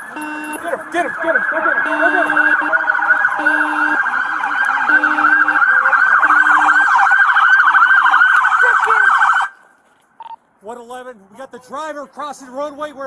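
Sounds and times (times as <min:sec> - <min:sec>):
emergency vehicle sirens: 0:00.0 - 0:09.6.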